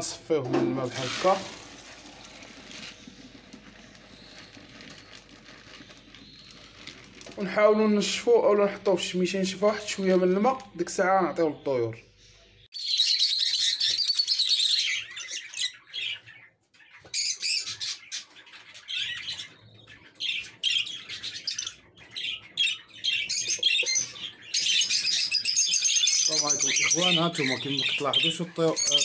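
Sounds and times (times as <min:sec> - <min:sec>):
budgerigars chattering: 0:12.4 - 0:29.0.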